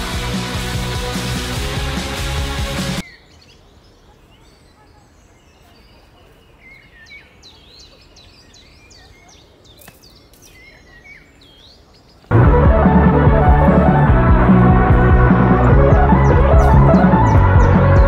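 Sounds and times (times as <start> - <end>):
loud music: 0.0 - 3.0, 12.3 - 18.0
small birds chirping: 3.0 - 12.3, 15.6 - 18.0.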